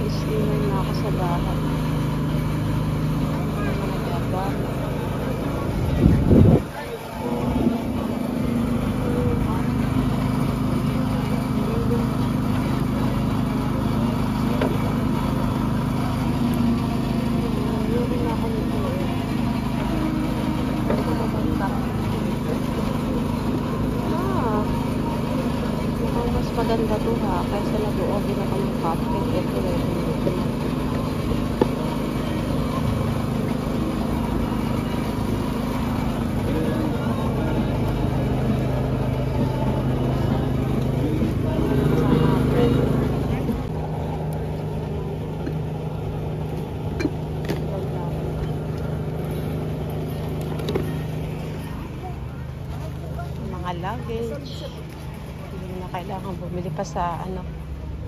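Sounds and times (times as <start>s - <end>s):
engine idling: 0.0s - 58.0s
faint background voices: 0.0s - 58.0s.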